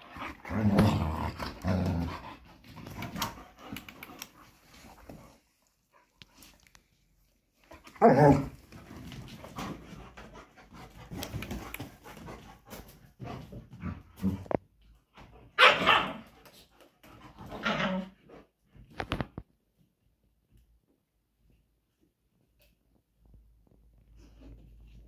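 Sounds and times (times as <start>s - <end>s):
dogs barking: 15.6s - 16.2s.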